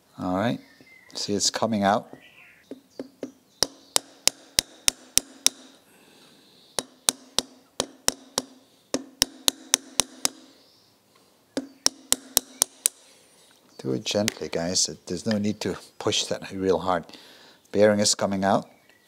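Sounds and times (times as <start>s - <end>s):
hammer tapping metal punch: 6.8s - 10.5s, 11.6s - 13.0s.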